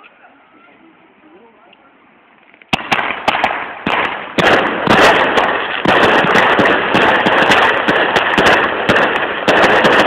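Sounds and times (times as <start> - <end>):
firework crackling bangs: 2.7 - 10.0
hissing sparks: 2.7 - 10.0.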